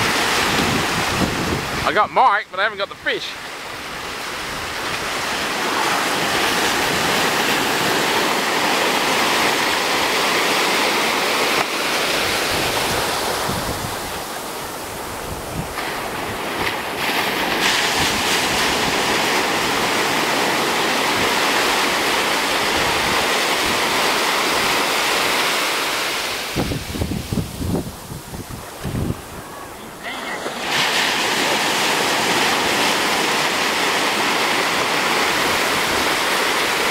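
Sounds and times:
wind rumbling on microphone: 0:00.0 - 0:02.0, 0:12.0 - 0:24.9, 0:26.2 - 0:30.0
ocean surf washing on beach: 0:00.0 - 0:36.9.

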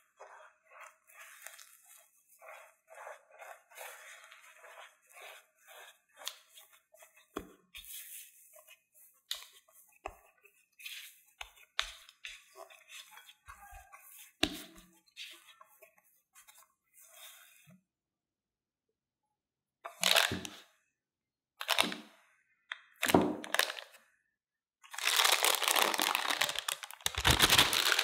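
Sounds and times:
spatula scraping and squishing in bowl: 0:00.0 - 0:17.8.

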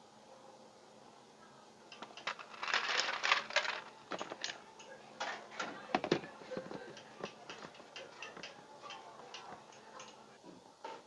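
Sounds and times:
ice cubes clattering in plastic jar: 0:02.3 - 0:04.6.

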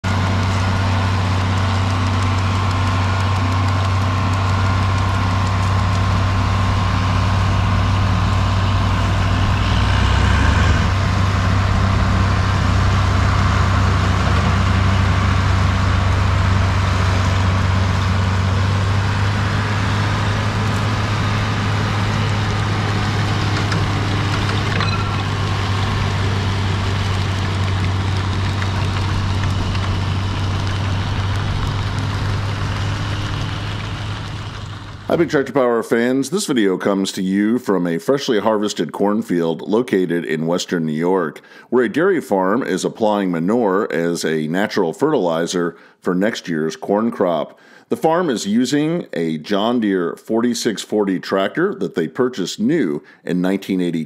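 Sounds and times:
manure spreader working: 0:00.0 - 0:35.7
tractor diesel engine running: 0:00.0 - 0:35.8.

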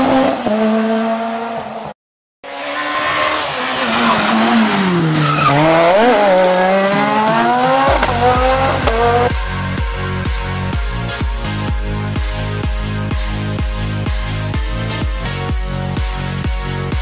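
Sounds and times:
rally car engine revving: 0:00.0 - 0:01.9, 0:02.5 - 0:10.0
electronic music with heavy beat: 0:06.6 - 0:17.0.

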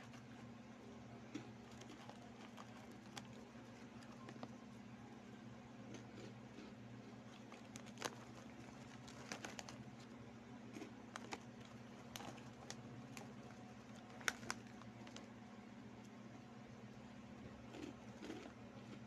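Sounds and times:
chips being chewed: 0:00.0 - 0:00.5, 0:01.3 - 0:04.6, 0:05.8 - 0:15.3, 0:17.6 - 0:19.0
steady low hum: 0:00.0 - 0:19.0
plastic bag crinkling: 0:01.3 - 0:04.5, 0:07.2 - 0:10.2, 0:10.8 - 0:15.3.

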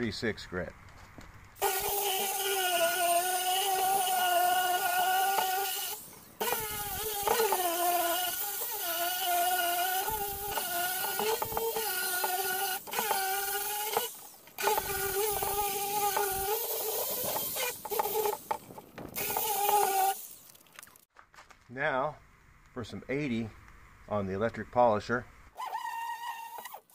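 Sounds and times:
electric sander motor whining: 0:01.6 - 0:20.3, 0:25.6 - 0:26.9.

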